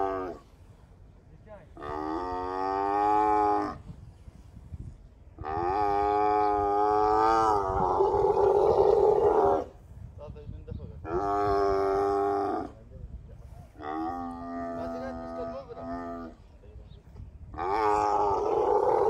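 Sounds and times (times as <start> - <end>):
camels calling with moans: 0.0 - 0.9, 1.7 - 4.1, 5.4 - 9.9, 11.0 - 12.8, 13.5 - 16.5, 17.5 - 19.0.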